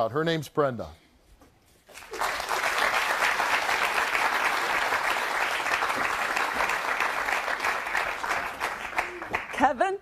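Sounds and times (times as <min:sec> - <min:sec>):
studio audience applauding: 0:01.9 - 0:09.8.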